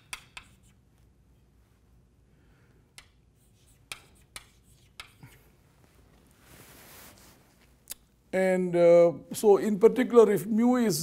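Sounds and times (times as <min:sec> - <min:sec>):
chalk tapping on blackboard: 0:00.0 - 0:00.8, 0:03.0 - 0:05.3
soft hiss: 0:00.3 - 0:10.0.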